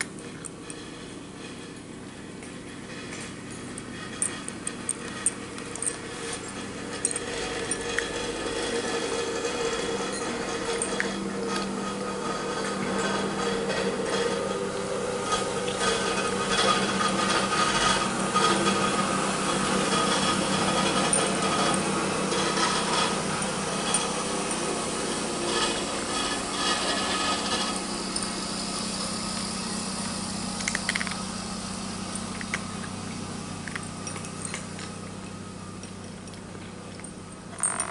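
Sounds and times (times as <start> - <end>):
steady low hum: 0.0 - 37.9
cat crunching food: 30.0 - 31.2.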